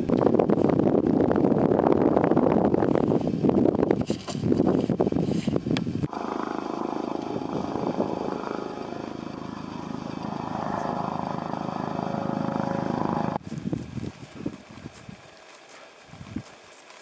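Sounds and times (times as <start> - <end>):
wind noise on microphone: 0.0 - 17.0
footsteps crunching in snow: 13.4 - 17.0.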